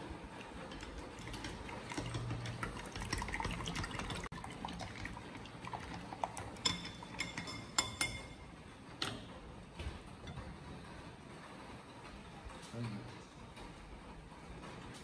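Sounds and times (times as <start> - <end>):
chopsticks whisking eggs: 0.4 - 8.3.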